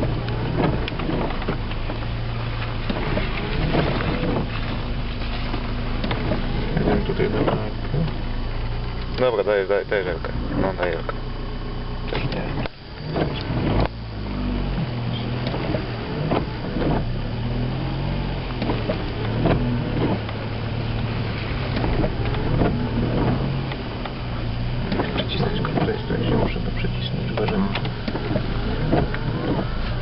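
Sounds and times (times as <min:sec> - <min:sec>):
car engine droning: 0:00.0 - 0:30.0
car body knocks and rattles: 0:18.5 - 0:30.0.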